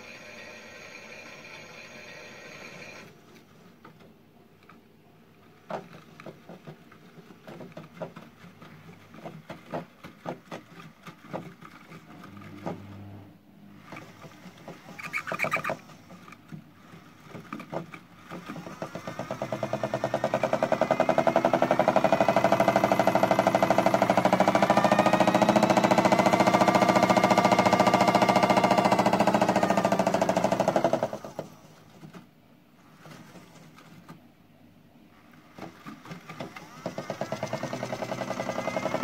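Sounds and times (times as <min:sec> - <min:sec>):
wrappers knocking inside drum: 0:05.7 - 0:12.8
toy washing machine drum turning: 0:13.9 - 0:16.4, 0:17.1 - 0:31.5, 0:35.5 - 0:39.0
motor spin whine: 0:18.3 - 0:31.6, 0:36.2 - 0:39.0.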